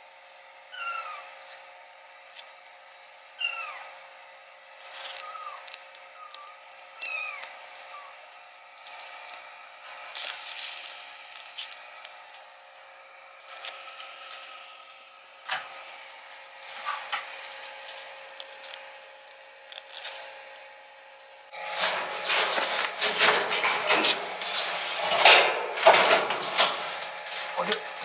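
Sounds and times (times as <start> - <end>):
faint hum: 0.1 - 28.0
objects clattering and rustling: 16.7 - 18.8, 21.6 - 27.6.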